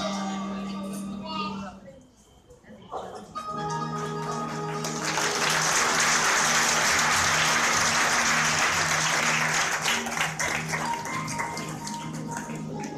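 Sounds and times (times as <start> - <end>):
music playing: 0.0 - 1.8, 3.2 - 12.9
audience applauding: 3.6 - 12.9.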